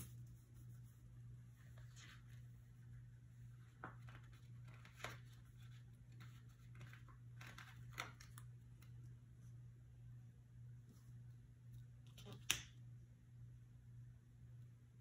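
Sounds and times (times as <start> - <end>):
low steady hum: 0.0 - 15.0
paper sticker sheets rustling: 3.5 - 9.0.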